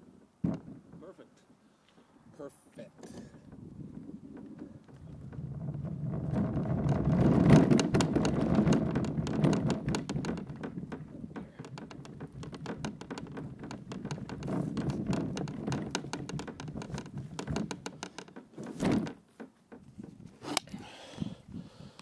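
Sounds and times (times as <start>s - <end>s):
cart wheels rumbling: 3.4s - 20.4s
cart rattling and clattering: 3.5s - 20.2s.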